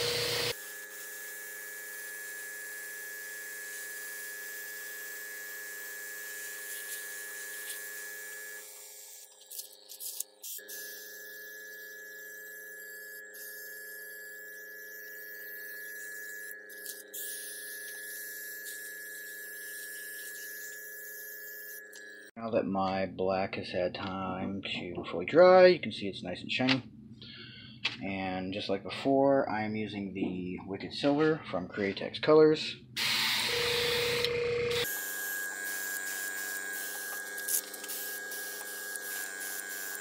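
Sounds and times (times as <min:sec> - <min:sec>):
compressor electric hum: 0:00.0 - 0:21.8, 0:33.0 - 0:40.0
airbrush spraying air hiss: 0:05.8 - 0:08.1, 0:08.9 - 0:21.8, 0:34.8 - 0:40.0.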